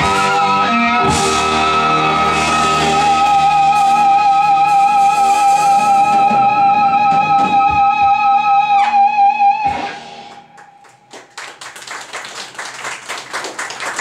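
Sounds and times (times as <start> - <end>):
live band sustained note: 0.0 - 10.9
audience clapping: 10.3 - 14.0.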